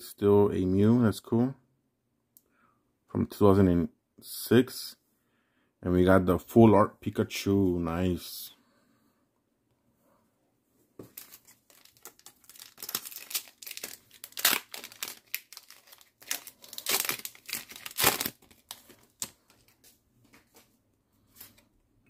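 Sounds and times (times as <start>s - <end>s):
foil wrapper crinkling: 11.0s - 19.9s.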